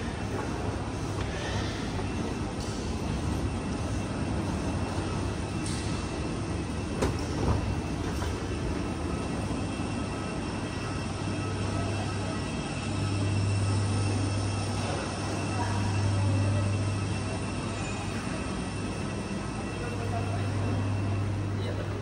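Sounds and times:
escalator hum and rumble: 0:00.0 - 0:22.0.

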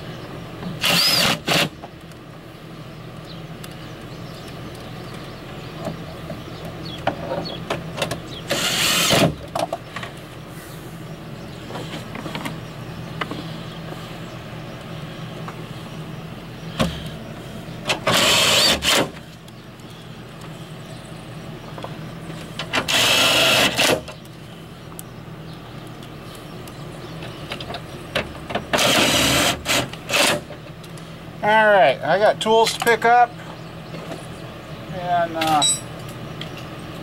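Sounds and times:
steady low hum: 0:00.0 - 0:37.0
loud tool bursts: 0:00.8 - 0:01.7, 0:08.5 - 0:09.4, 0:18.0 - 0:19.2, 0:22.8 - 0:24.1, 0:28.7 - 0:30.4.

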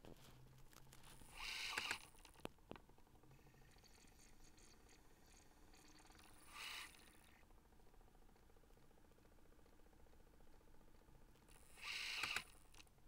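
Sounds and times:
mechanism clicks: 0:00.6 - 0:02.9, 0:03.7 - 0:12.9
disc player mechanism whirring: 0:00.8 - 0:07.5, 0:11.5 - 0:13.0.

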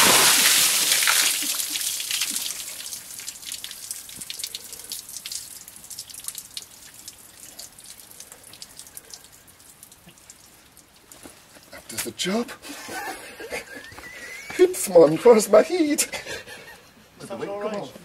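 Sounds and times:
water splashing over person: 0:00.0 - 0:04.7
water dripping and trickling: 0:00.0 - 0:15.1.

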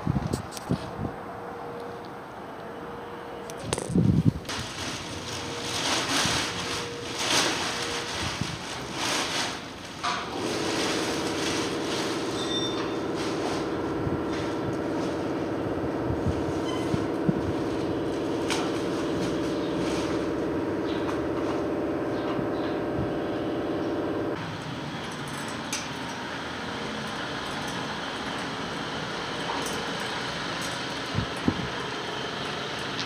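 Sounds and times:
workshop noise: 0:03.5 - 0:33.0
machine hum: 0:04.5 - 0:33.0.

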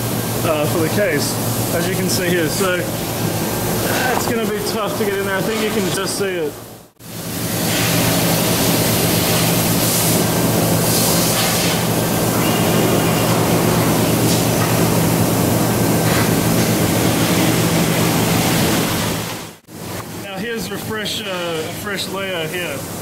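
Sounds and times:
low machine hum: 0:00.0 - 0:23.0
laser cutter hiss: 0:07.2 - 0:15.4.

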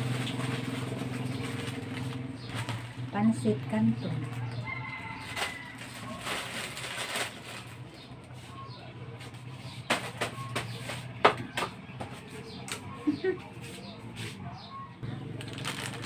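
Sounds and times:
plastic packets rustling: 0:00.0 - 0:08.4, 0:15.0 - 0:16.0
sharp plastic crackles: 0:00.0 - 0:08.4, 0:15.0 - 0:16.0.

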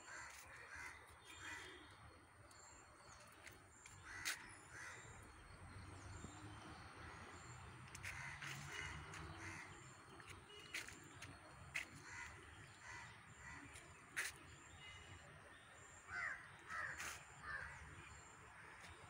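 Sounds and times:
crows cawing faintly: 0:00.0 - 0:01.9, 0:04.0 - 0:05.2, 0:07.9 - 0:10.0, 0:11.8 - 0:14.4, 0:16.1 - 0:17.9.

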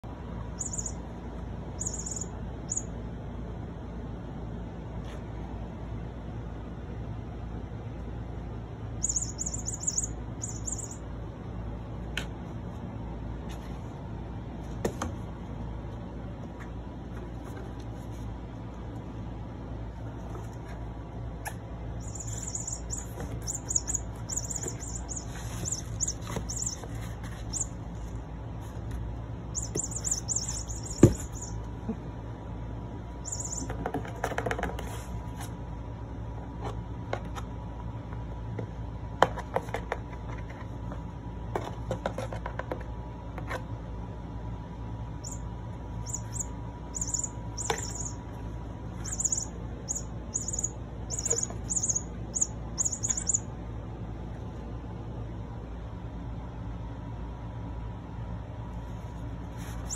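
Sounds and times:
low steady hum: 0:00.0 - 0:59.9
high chirping: 0:00.5 - 0:01.1, 0:01.7 - 0:02.9, 0:09.0 - 0:11.0, 0:22.0 - 0:27.8, 0:29.5 - 0:31.6, 0:33.2 - 0:33.7, 0:45.2 - 0:48.3, 0:49.0 - 0:53.5.

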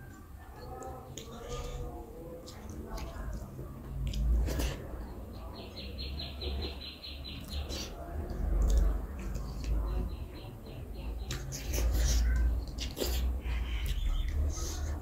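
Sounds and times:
chewing: 0:00.0 - 0:05.1, 0:07.4 - 0:10.2, 0:11.2 - 0:15.0.

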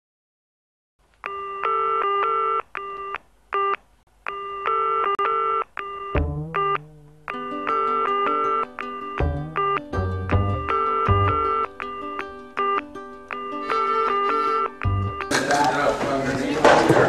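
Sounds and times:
electronic beeping riff: 0:05.8 - 0:15.3
low bass line: 0:06.2 - 0:07.8, 0:09.2 - 0:12.4, 0:14.7 - 0:15.3.

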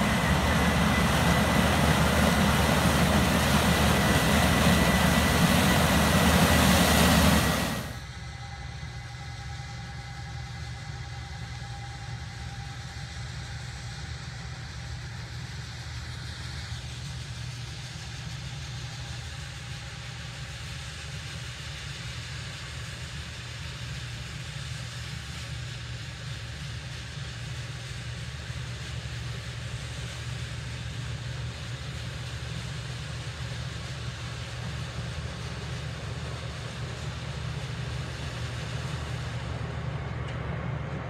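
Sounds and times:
harvest machinery engine drone: 0:00.0 - 0:08.1, 0:33.9 - 0:41.0
faint high whine: 0:00.0 - 0:13.0.

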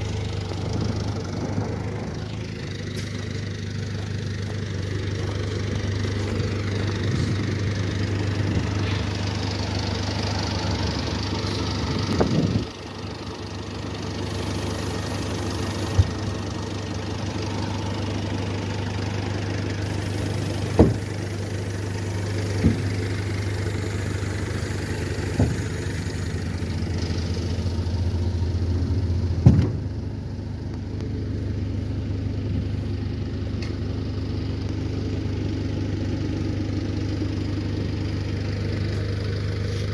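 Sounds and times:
truck engine running: 0:00.0 - 0:39.9
sharp knocks: 0:29.4 - 0:29.9.

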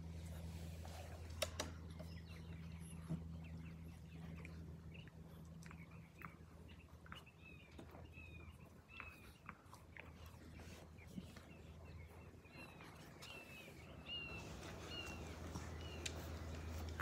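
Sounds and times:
puppies chewing and mouthing: 0:00.0 - 0:17.0.

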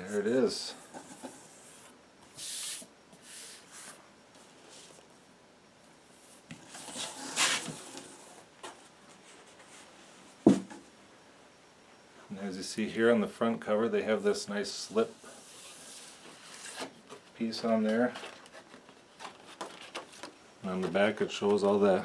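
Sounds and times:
cardboard rustling and scraping: 0:06.3 - 0:10.8, 0:15.1 - 0:21.0.

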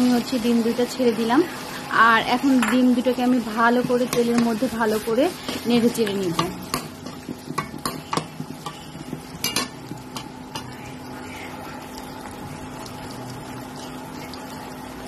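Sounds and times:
eggs sizzling in oil: 0:00.0 - 0:15.0
metal spoon scraping a pan: 0:02.3 - 0:10.9.

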